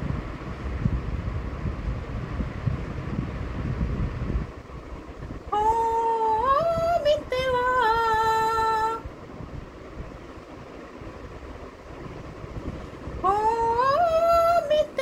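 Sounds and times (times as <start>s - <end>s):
microphone handling rumble: 0.0s - 15.0s.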